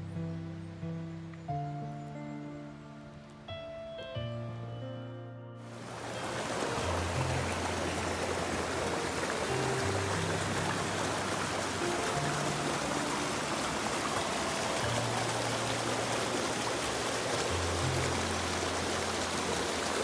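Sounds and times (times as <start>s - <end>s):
music of low held notes: 0.0s - 20.0s
stream rushing over rocks: 5.7s - 20.0s.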